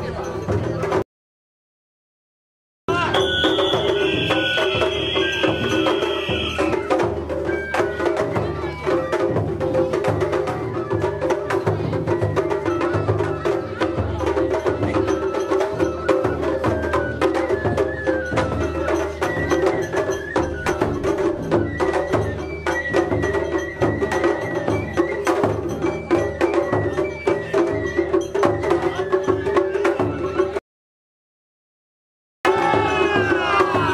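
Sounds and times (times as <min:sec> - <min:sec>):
taiko drums beaten: 0:00.0 - 0:01.0, 0:02.9 - 0:30.6, 0:32.5 - 0:33.9
high flute notes: 0:02.9 - 0:06.9.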